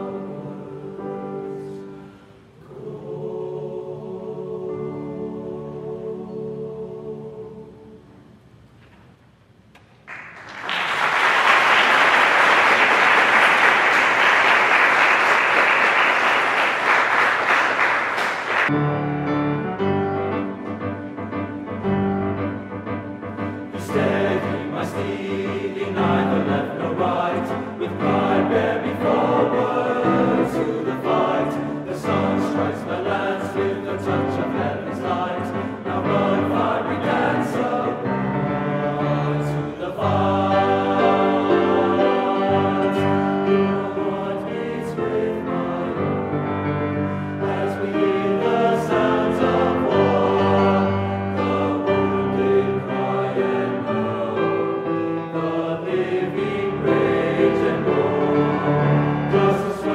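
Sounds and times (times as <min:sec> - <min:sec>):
male choir singing: 0:00.0 - 0:02.0, 0:02.6 - 0:08.0, 0:23.7 - 0:59.9
audience applause: 0:10.1 - 0:18.7
piano accompaniment: 0:11.9 - 0:59.9.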